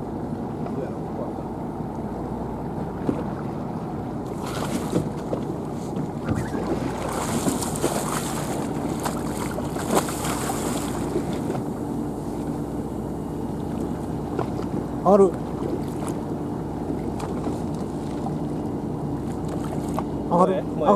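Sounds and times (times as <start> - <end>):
boat rumble: 0.0 - 20.9
wind: 0.0 - 20.9
fish thrashing and splashing water: 4.3 - 5.6, 6.2 - 11.7, 19.2 - 20.1.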